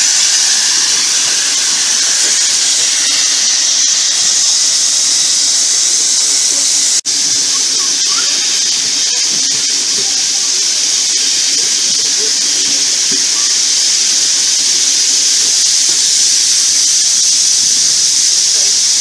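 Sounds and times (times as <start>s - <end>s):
air rushing past train window: 0.0s - 7.8s.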